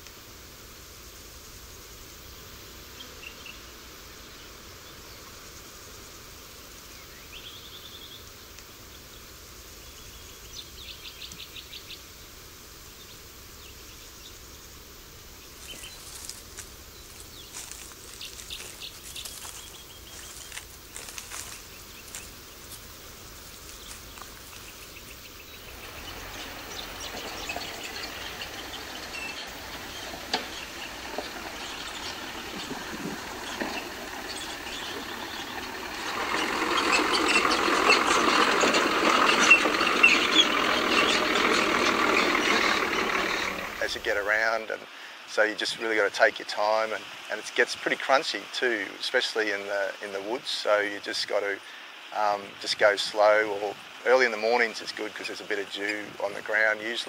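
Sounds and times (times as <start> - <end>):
steady outdoor hiss: 0.0 - 57.0
birds chirping: 6.8 - 47.6, 48.2 - 57.0
vehicle driving on dirt track: 15.4 - 44.3
footsteps on dry leaves: 15.6 - 34.6.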